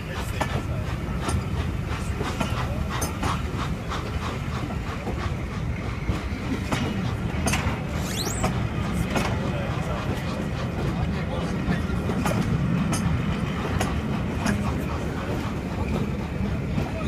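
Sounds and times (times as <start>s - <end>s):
train wheels rumbling on rails: 0.0s - 17.0s
wheels clicking over rail joints: 0.0s - 17.0s
high squeal: 8.0s - 8.5s.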